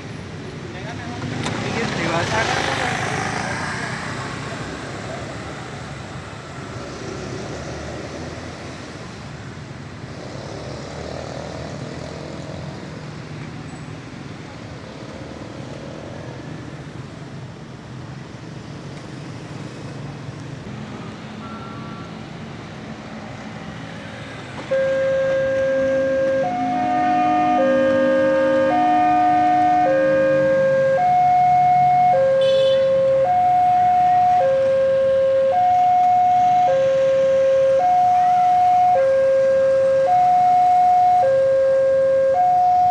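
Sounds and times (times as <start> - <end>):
traffic hum: 0.0 - 42.9
level crossing warning signal: 24.6 - 42.9.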